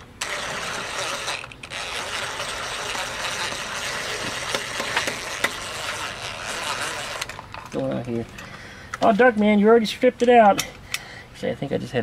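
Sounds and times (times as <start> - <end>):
impact driver hammering: 3.5 - 5.7.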